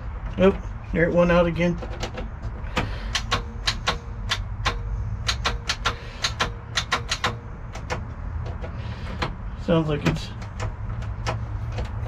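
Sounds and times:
starter solenoid clicking rapidly: 2.7s - 8.1s.

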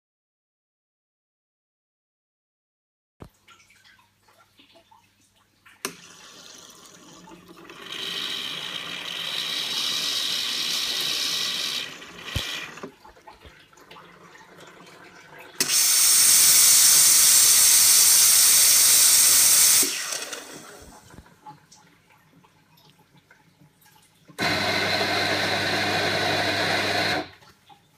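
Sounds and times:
hot water hissing into cup: 7.8s - 12.9s, 15.6s - 21.2s
loud high steam hiss: 15.6s - 20.1s.

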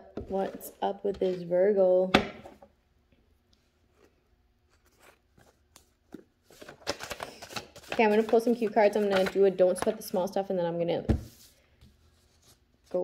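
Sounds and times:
cards shuffling clicks and taps: 4.7s - 10.0s.

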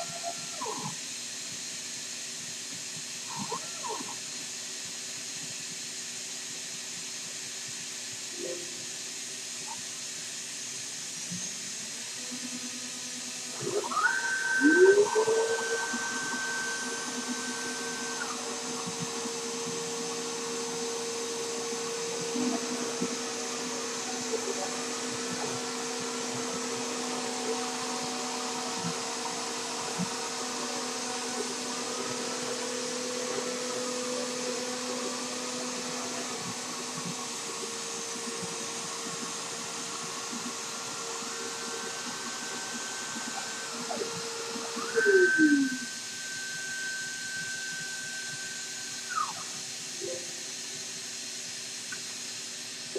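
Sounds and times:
router spindle whine: 8.3s - 52.7s
stepper motor whines: 11.2s - 51.4s.

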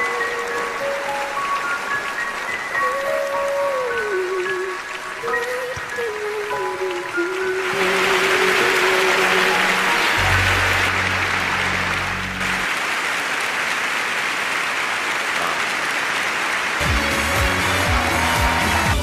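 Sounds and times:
music: 0.0s - 12.7s, 16.8s - 19.0s
audience applause: 0.0s - 19.0s.

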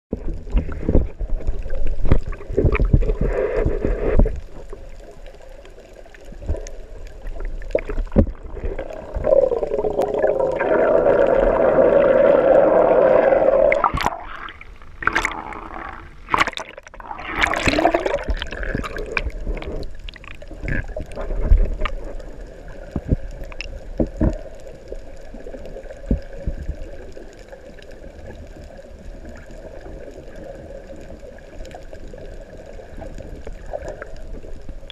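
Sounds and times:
water sloshing and gurgling: 0.1s - 34.9s
sharp water splashes: 13.2s - 19.3s.

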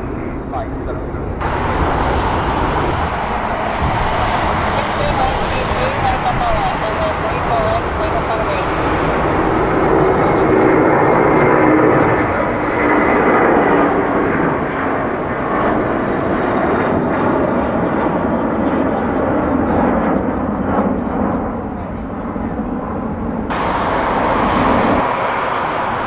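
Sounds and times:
jet engine roar: 0.0s - 26.0s
hissing jet noise: 1.3s - 16.7s, 23.5s - 26.0s.

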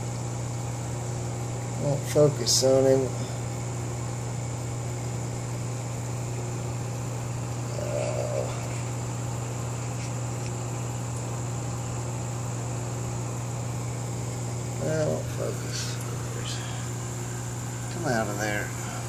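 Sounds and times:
aquarium equipment humming: 0.0s - 19.0s
even hiss: 7.6s - 9.0s, 14.8s - 19.0s.

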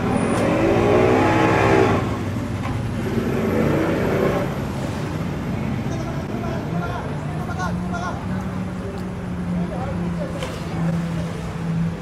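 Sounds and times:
outboard engines revving: 0.0s - 5.6s.

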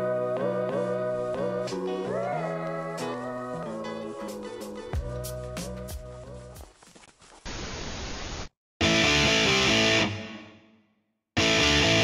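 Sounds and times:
tv static hiss: 7.4s - 8.5s
distorted electric guitar music: 8.8s - 10.6s, 11.4s - 12.0s.

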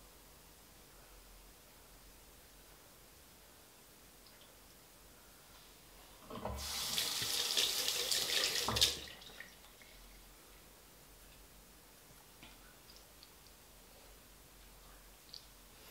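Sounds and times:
tap running into a sink: 6.3s - 9.1s.

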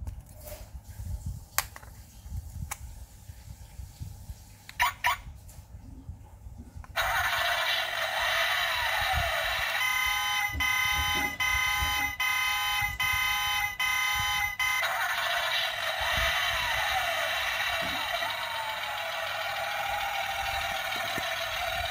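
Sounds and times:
toy car electronic sound effect: 7.0s - 21.9s.

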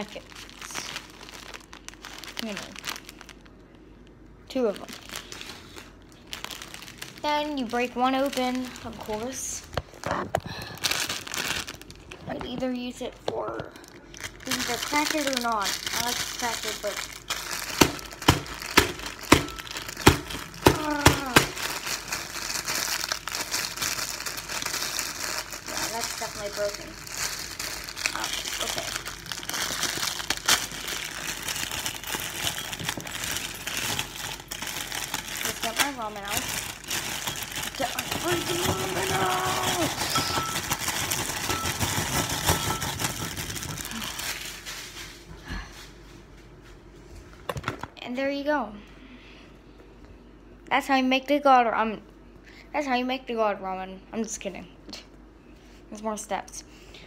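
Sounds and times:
plastic wrapper crinkling: 0.0s - 45.1s.

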